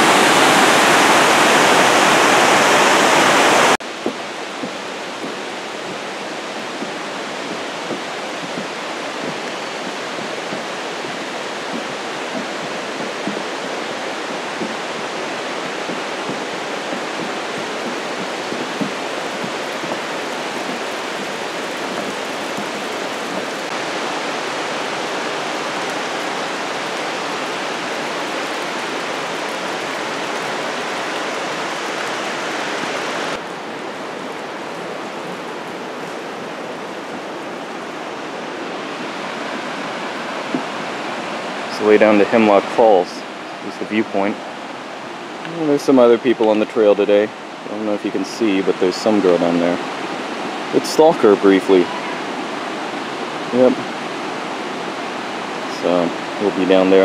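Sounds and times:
rushing water of waterfall: 0:00.0 - 0:57.0.

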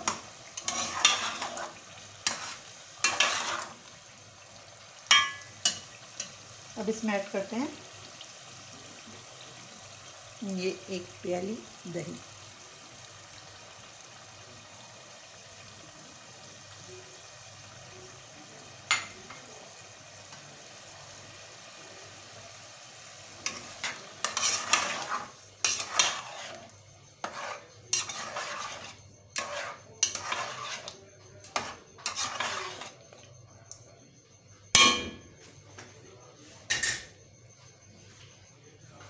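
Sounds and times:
spatula scraping a pot: 0:00.0 - 0:03.9, 0:23.4 - 0:33.1
curry sizzling in a pot: 0:00.0 - 0:33.5.

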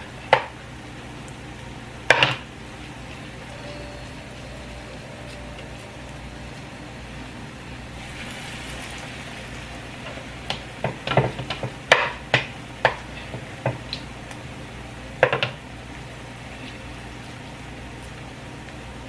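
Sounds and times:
patties sizzling in hot oil: 0:07.9 - 0:18.2.

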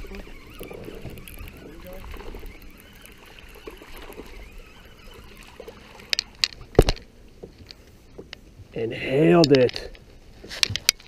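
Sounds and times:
fish splashing: 0:00.0 - 0:07.4
fishing reel cranking: 0:00.0 - 0:07.8.

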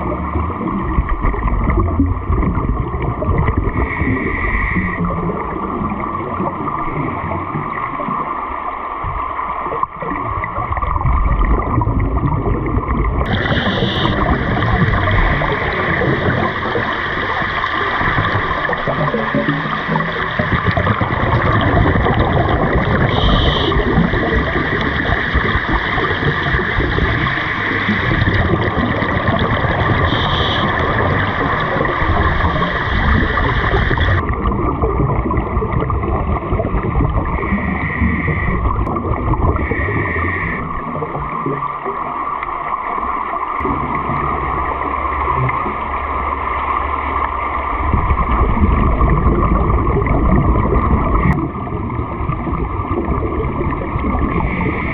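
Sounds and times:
bubbles gurgling underwater: 0:00.0 - 0:54.9
diver breathing through regulator: 0:03.7 - 0:05.1, 0:37.4 - 0:38.7, 0:39.5 - 0:40.7.

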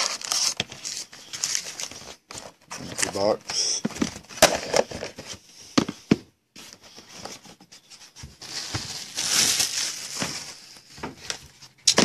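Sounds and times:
foil packaging crinkling: 0:00.0 - 0:02.0, 0:08.4 - 0:11.5.

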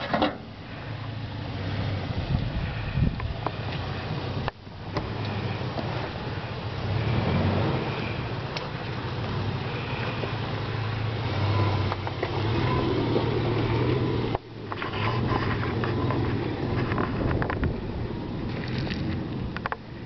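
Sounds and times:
car engine running low: 0:00.0 - 0:20.0
stones crunching under tyres: 0:11.3 - 0:20.0.

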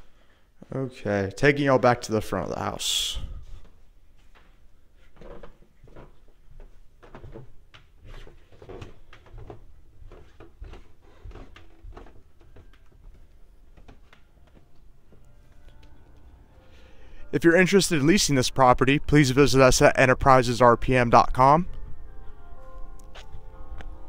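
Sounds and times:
footsteps on carpeted stairs: 0:03.2 - 0:16.4.

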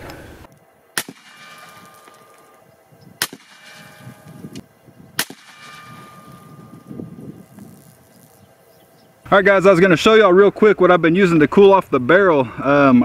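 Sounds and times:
gunshot cracks: 0:01.0 - 0:02.5, 0:03.2 - 0:04.5, 0:05.2 - 0:06.5.

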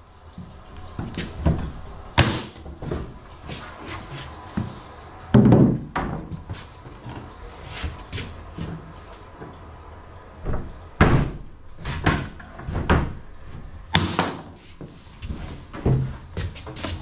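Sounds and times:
hard knocks and clunks: 0:04.6 - 0:06.5, 0:10.4 - 0:13.2.

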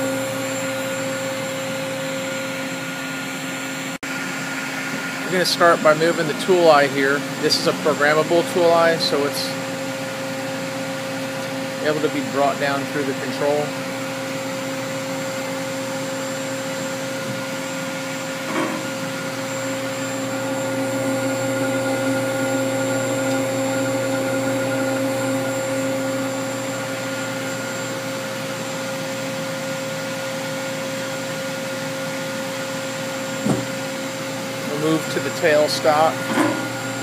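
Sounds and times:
machine hum with whine: 0:00.0 - 0:37.0
short knock: 0:33.4 - 0:33.8.

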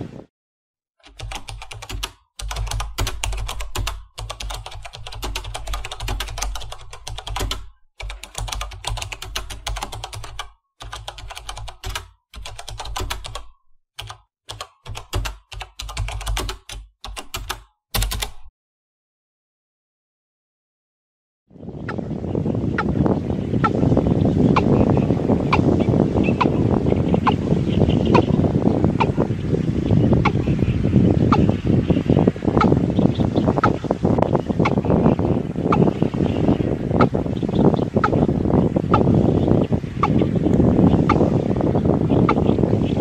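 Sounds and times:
computer keyboard typing: 0:01.0 - 0:18.5.

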